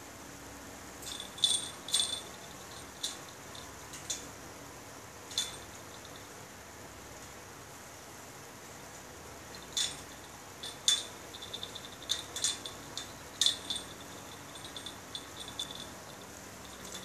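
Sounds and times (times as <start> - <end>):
cat collar bell jingling: 1.0 - 3.7, 5.3 - 6.3, 9.5 - 17.0
clinks against wire cage: 1.0 - 4.3, 5.3 - 6.3, 9.5 - 17.0.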